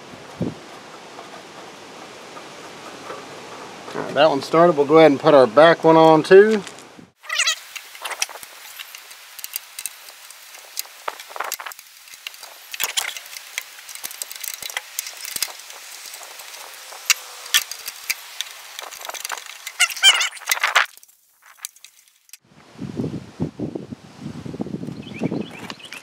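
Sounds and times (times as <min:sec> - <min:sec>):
sheet metal clicking and scraping: 0:00.6 - 0:04.3, 0:07.6 - 0:20.9
squeaky rasp: 0:14.6 - 0:20.8.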